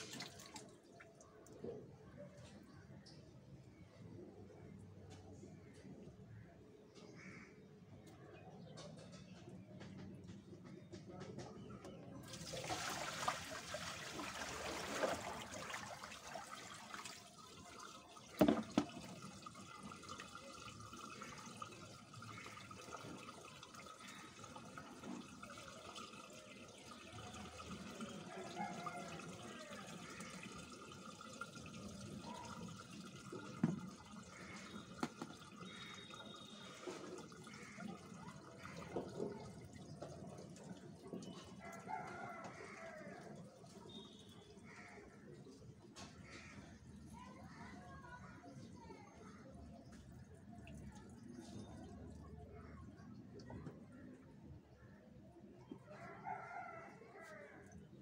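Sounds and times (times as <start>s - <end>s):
water splashing and running: 0.0s - 1.5s, 12.2s - 45.6s.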